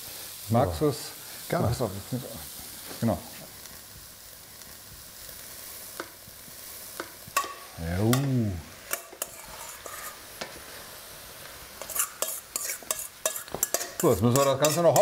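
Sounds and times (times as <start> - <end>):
meat sizzling in a pot: 0.0 - 15.0
wooden spatula scraping pot: 8.9 - 10.2, 11.8 - 15.0.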